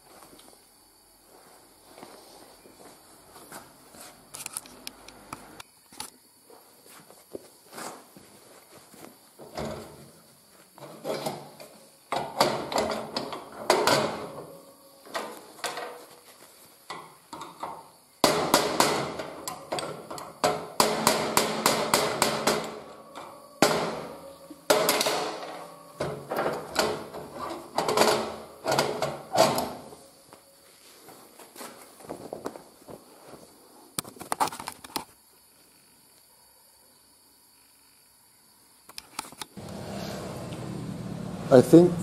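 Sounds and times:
metal parts clanking and knocking: 0:16.9 - 0:29.8.

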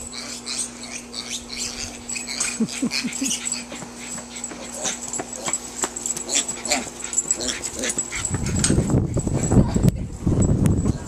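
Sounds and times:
small animal calls: 0:00.0 - 0:05.6.

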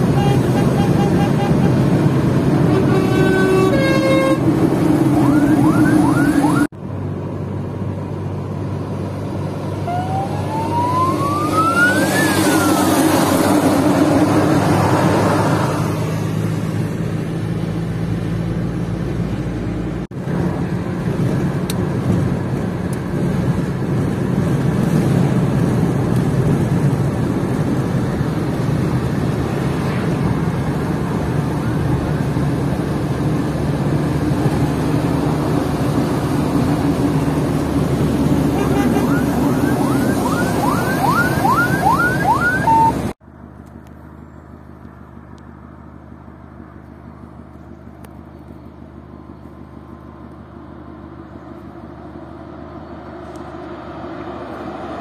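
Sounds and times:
car road and engine noise: 0:00.0 - 0:55.0
rising and falling tone: 0:04.4 - 0:06.7, 0:09.6 - 0:15.9, 0:36.4 - 0:43.1.

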